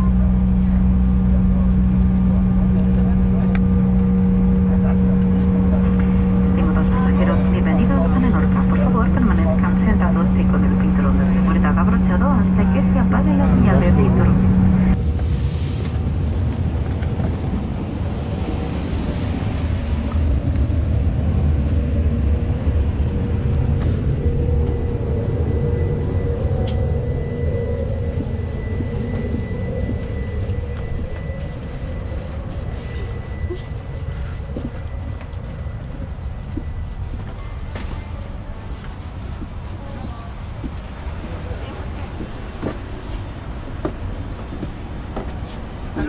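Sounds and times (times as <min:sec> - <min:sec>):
faint even hum: 0:00.0 - 0:15.5
airliner cabin rumble: 0:00.0 - 0:46.0.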